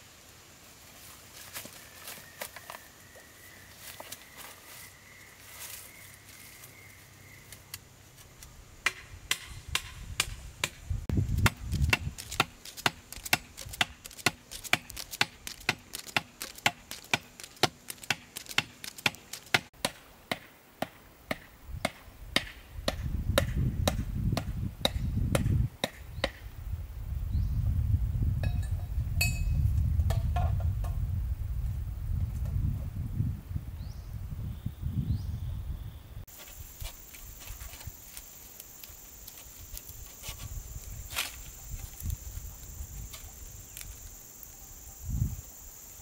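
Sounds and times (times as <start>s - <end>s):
sharp chopping strikes: 8.8s - 10.8s, 11.4s - 26.4s.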